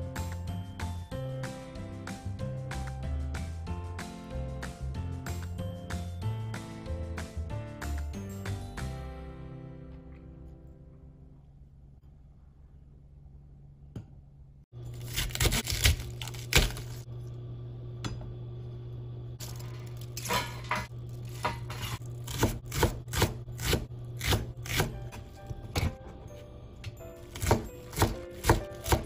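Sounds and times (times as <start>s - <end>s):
steady low hum: 10.1s - 26.9s
knife chopping on cutting board: 15.0s - 17.0s, 20.2s - 26.1s, 27.2s - 29.0s.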